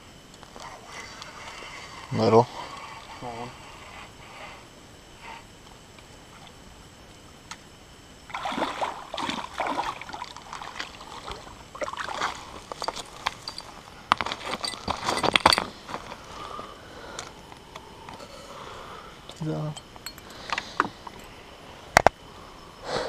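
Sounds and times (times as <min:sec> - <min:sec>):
fish splashing in water: 0:08.3 - 0:12.5.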